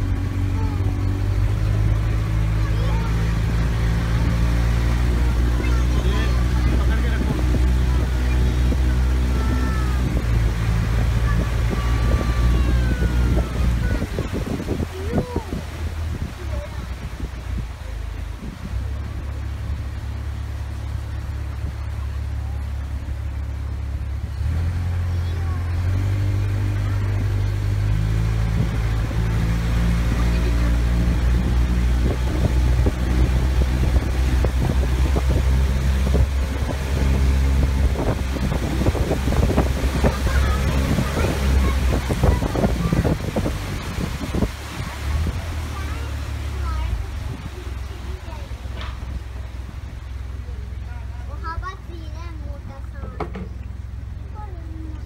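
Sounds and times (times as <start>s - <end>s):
boat engine droning: 0.0s - 55.0s
short knocks: 53.1s - 53.7s.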